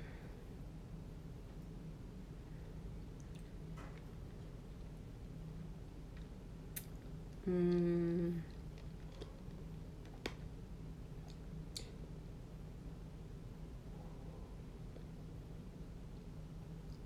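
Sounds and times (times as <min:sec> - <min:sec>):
woman humming: 0:07.4 - 0:08.6.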